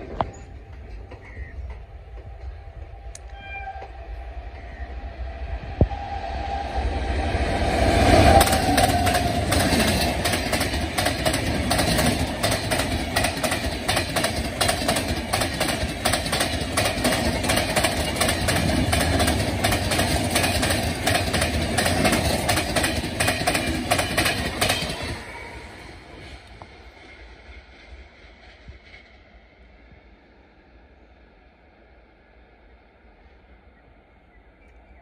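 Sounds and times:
electric locomotive passing: 0.0 - 35.0
wheels clattering over rail joints: 8.3 - 25.5.

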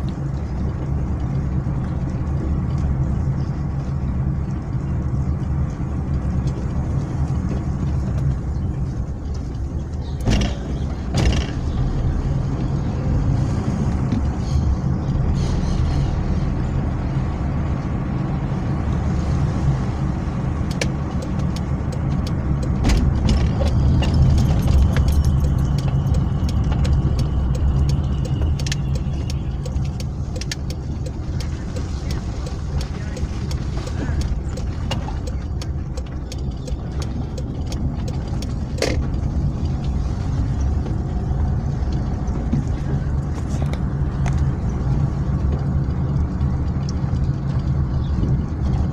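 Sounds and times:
car engine and road noise: 0.0 - 48.9
light ticking: 23.6 - 42.5.

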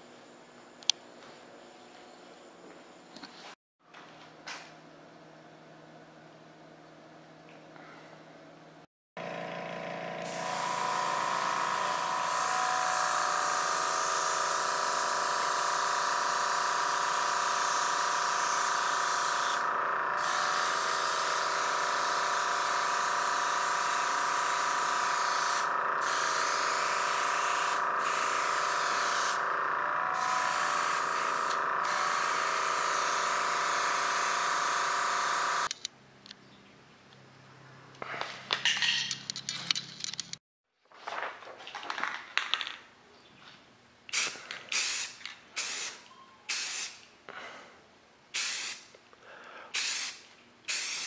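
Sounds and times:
air compressor whine: 9.2 - 35.7
airbrush spray hissing: 10.2 - 35.7, 44.1 - 47.0, 48.4 - 48.9, 49.7 - 51.0.

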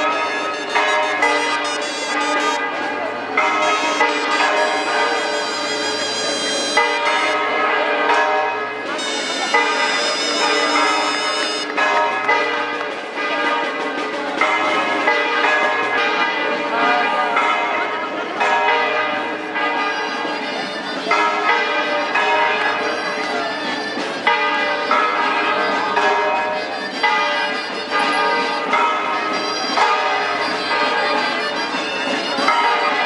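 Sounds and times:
live folk music: 0.0 - 17.6, 19.2 - 33.0
church bells ringing: 0.0 - 33.0.

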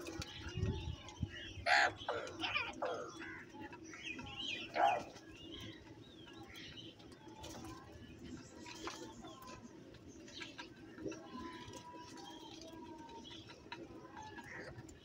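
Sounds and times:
crows cawing: 1.6 - 3.5.

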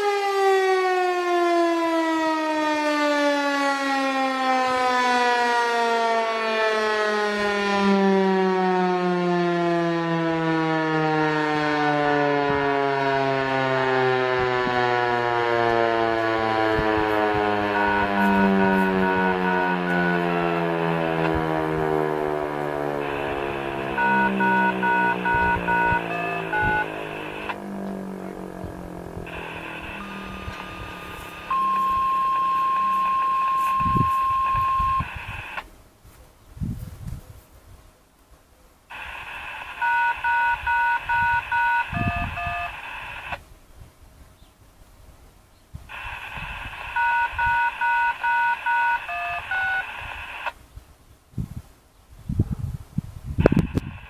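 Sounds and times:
electronic siren wailing: 0.0 - 35.6, 38.9 - 43.4, 45.9 - 50.5
radio click: 23.0 - 28.2, 29.2 - 35.7, 45.9 - 50.6, 53.5 - 54.0
radio hiss: 23.0 - 35.7, 38.9 - 43.4, 45.9 - 50.6, 53.5 - 54.0
dual-tone beeps: 23.9 - 27.6, 29.4 - 35.4, 39.8 - 42.7, 46.9 - 49.9.

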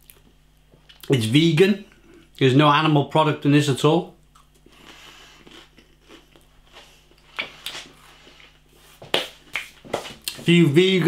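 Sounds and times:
man chewing toast: 4.3 - 8.6.

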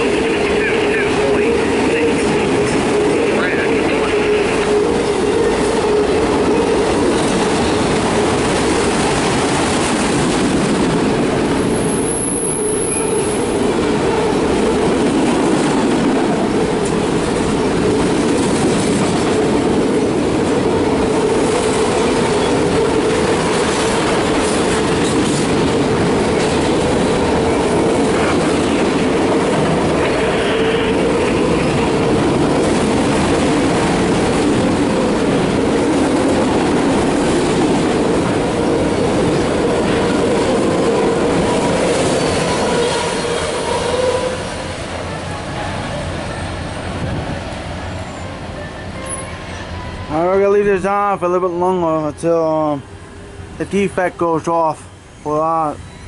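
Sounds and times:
freight train wheels rumbling on rail: 0.0 - 56.0
high-pitched wheel squeal: 11.7 - 13.6, 48.0 - 50.0, 54.9 - 56.0.

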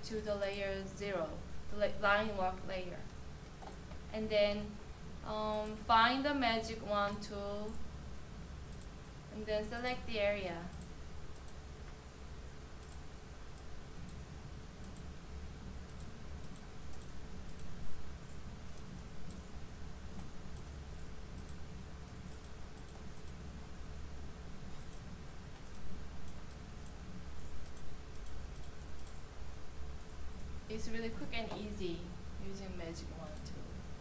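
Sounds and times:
low hum of room equipment: 0.0 - 34.0
computer mouse clicking: 8.7 - 9.0, 10.7 - 12.0, 12.6 - 15.1, 15.8 - 17.8, 18.7 - 19.5, 20.1 - 23.4, 24.7 - 29.2.

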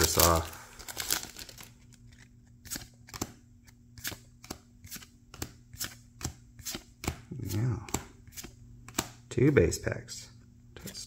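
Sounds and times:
trading cards snapping: 2.0 - 9.2.

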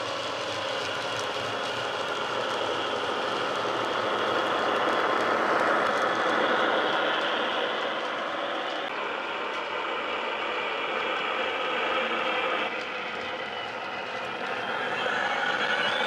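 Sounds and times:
model train running on track: 0.0 - 16.0
diesel engine sound from small speaker: 14.3 - 16.0.

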